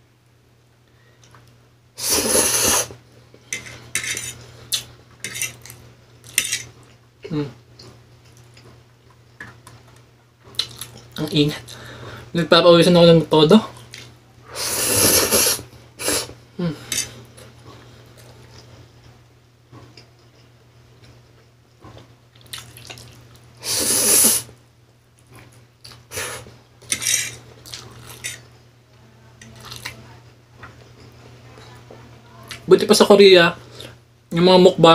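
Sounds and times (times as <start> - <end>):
person slurping noodles: 2.0 - 3.0, 14.6 - 16.4, 22.9 - 24.5
wet chewing and smacking: 7.8 - 11.3, 21.8 - 23.5, 27.6 - 28.3, 29.4 - 30.0.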